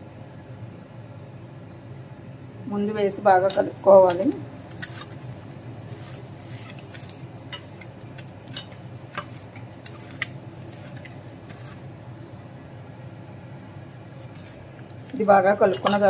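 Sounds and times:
steady low hum: 0.0s - 16.0s
wet spinach squelching: 3.5s - 12.0s, 13.9s - 16.0s.

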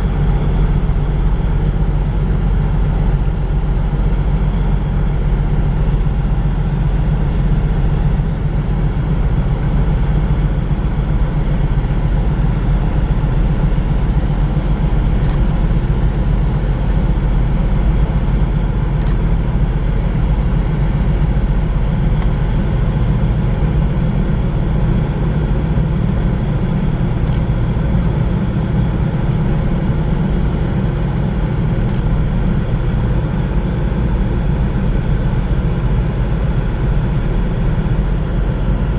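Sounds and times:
ship diesel engines droning: 0.0s - 38.9s.

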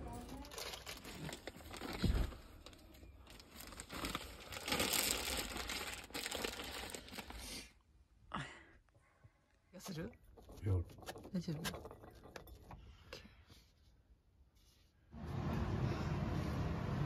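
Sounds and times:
packaging crinkling: 0.2s - 7.4s.

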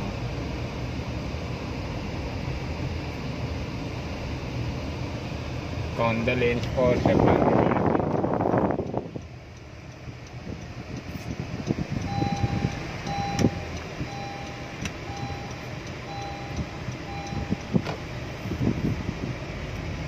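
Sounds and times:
engine and tyre rumble: 0.0s - 20.0s
seat belt reminder chime: 12.0s - 17.8s.

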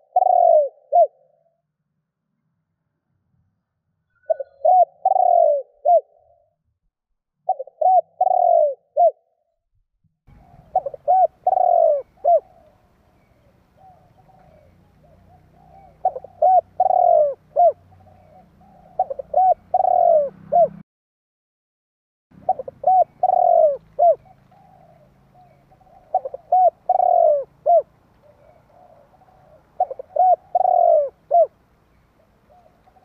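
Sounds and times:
dove cooing: 0.0s - 1.4s, 4.3s - 6.5s, 7.5s - 9.3s, 10.3s - 20.8s, 22.4s - 31.6s, 32.2s - 33.0s.

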